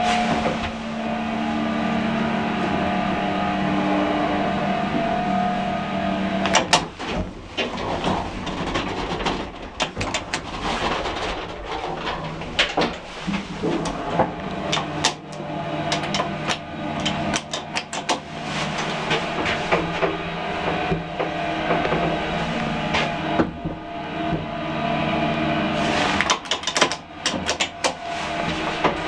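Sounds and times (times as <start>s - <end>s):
lift motor hum: 0.0s - 29.0s
lift machinery clicking and rattling: 6.3s - 29.0s.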